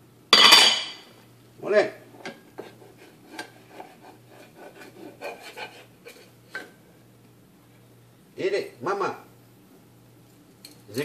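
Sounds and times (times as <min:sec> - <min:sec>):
spoon scraping rice in saucepan: 0:02.1 - 0:06.8.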